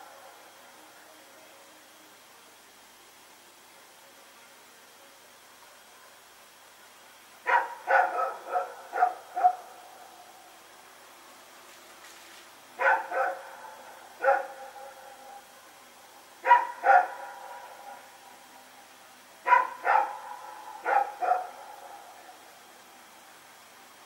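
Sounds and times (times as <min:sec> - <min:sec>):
dog barking with echo: 0:07.5 - 0:09.8, 0:12.8 - 0:15.4, 0:16.4 - 0:18.1, 0:19.4 - 0:22.2.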